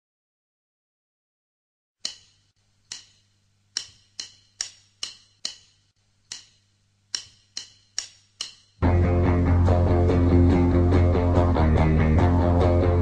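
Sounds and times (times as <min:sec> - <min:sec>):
sharp click sound effects: 0:02.0 - 0:08.8.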